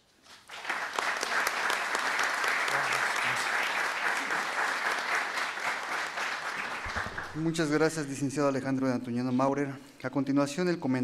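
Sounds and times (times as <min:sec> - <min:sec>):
audience applauding: 0:00.3 - 0:08.2.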